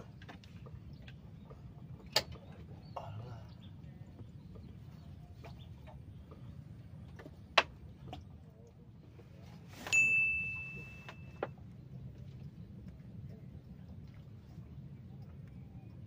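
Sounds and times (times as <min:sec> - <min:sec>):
high electronic ding: 0:09.9 - 0:11.4.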